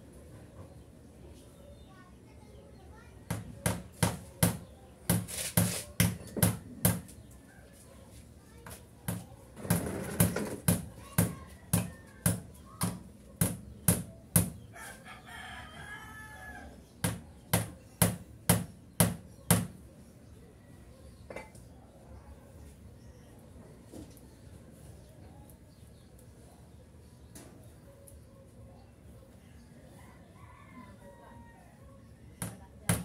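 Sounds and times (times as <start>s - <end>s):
rooster crowing: 14.7s - 16.8s, 29.9s - 31.9s.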